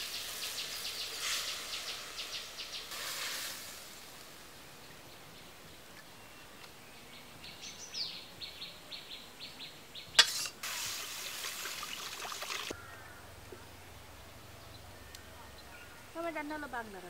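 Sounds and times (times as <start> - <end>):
oil hissing in hot wok: 0.0 - 4.6, 10.2 - 12.7.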